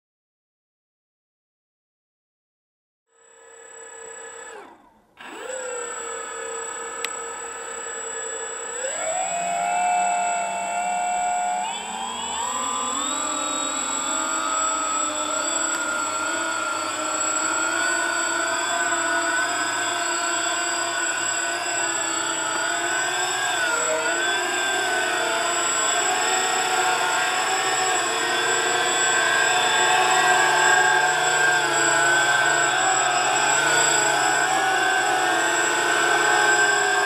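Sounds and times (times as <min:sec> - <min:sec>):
electric motors whining: 0:03.1 - 0:37.0
steady high whistle: 0:08.2 - 0:37.0.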